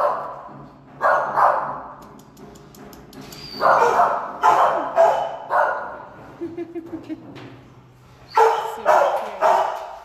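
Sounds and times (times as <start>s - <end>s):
dogs barking with echo: 0.0s - 2.0s, 3.6s - 6.2s, 8.3s - 10.0s.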